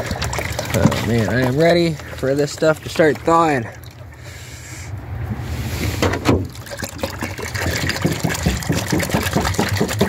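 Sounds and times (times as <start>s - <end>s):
water splashing into plastic tray: 0.0s - 4.0s, 6.1s - 10.0s
water pouring from a jug: 0.0s - 4.4s, 6.4s - 10.0s.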